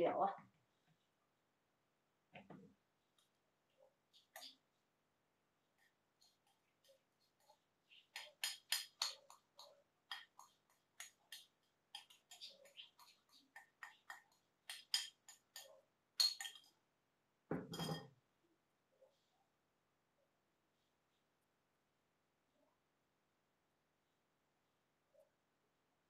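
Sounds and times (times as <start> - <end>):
spoon scraping ceramic bowl: 5.8 - 16.8, 17.7 - 18.1.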